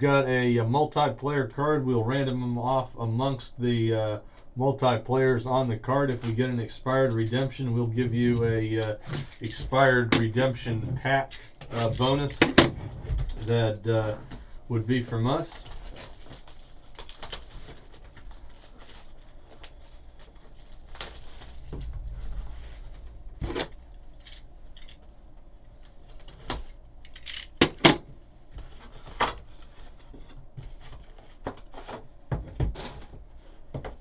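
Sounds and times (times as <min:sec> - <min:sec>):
shrink wrap rustling and tearing: 0:15.1 - 0:25.0.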